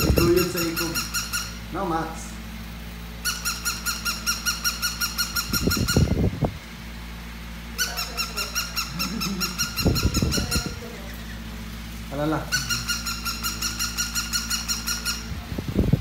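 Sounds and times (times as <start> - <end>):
toy dog electronic yips: 3.2 - 6.1, 7.8 - 10.7, 12.6 - 15.3.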